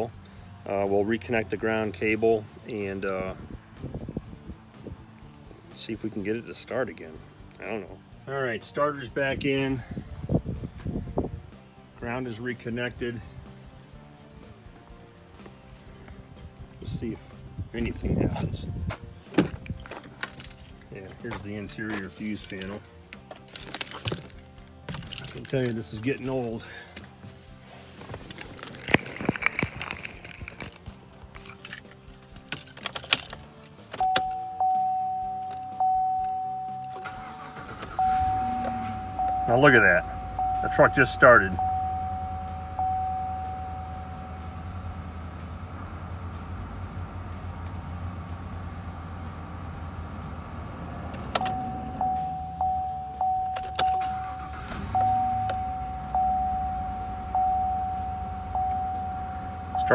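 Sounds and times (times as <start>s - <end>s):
keys jangling: 22.4s - 27.2s, 28.3s - 34.3s
dashboard warning chime: 34.0s - 45.1s, 51.3s - 59.9s
pickup engine idling: 34.1s - 59.9s.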